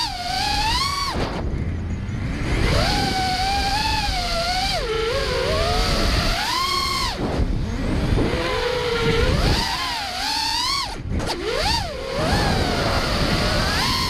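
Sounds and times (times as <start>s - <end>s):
drone motors whining: 0.0s - 14.0s
low rumble: 1.1s - 4.2s.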